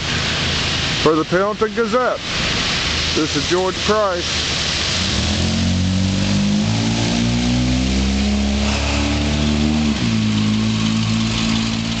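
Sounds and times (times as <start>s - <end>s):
steady hiss: 0.0s - 6.2s.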